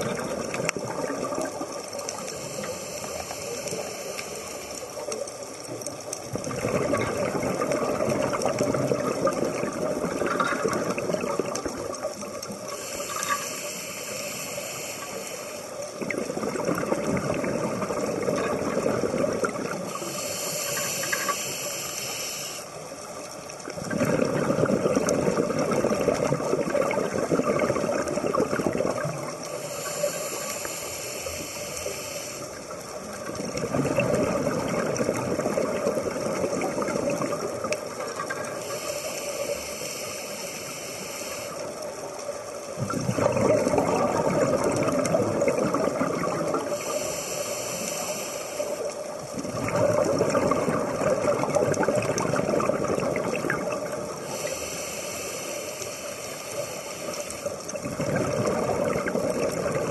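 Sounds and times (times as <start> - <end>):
hissing regulator inhalation: 1.9 - 5.2, 12.6 - 15.9, 19.4 - 22.9, 29.0 - 32.7, 38.5 - 42.0, 46.5 - 49.1, 53.8 - 57.6
bubbling underwater exhalation: 6.3 - 11.9, 16.0 - 19.8, 23.8 - 29.4, 33.4 - 38.3, 42.8 - 46.8, 49.3 - 54.3, 57.7 - 59.9.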